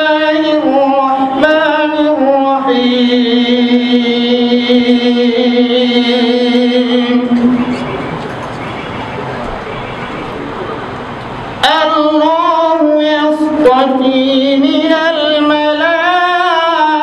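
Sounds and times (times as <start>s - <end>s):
man chanting melodically: 0.0s - 10.9s, 11.5s - 17.0s.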